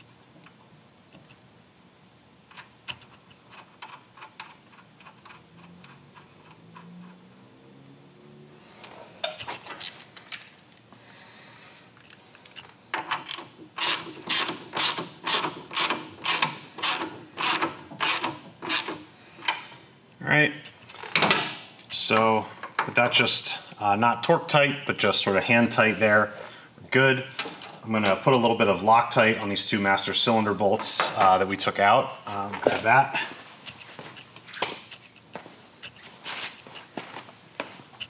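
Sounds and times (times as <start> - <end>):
ratchet wrench clicking: 13.3 - 19.0.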